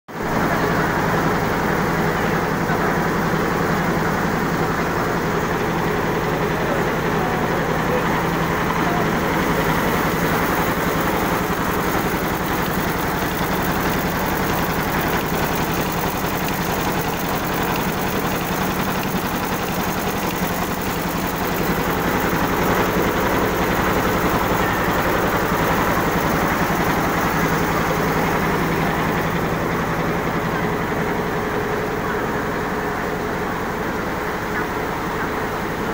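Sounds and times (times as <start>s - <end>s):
knitting machine clattering: 9.3s - 29.2s.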